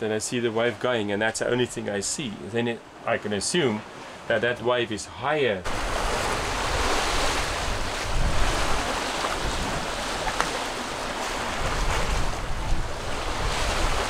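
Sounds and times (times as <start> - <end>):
ocean waves rushing and sloshing: 0.0 - 14.0
wind on microphone: 5.7 - 14.0.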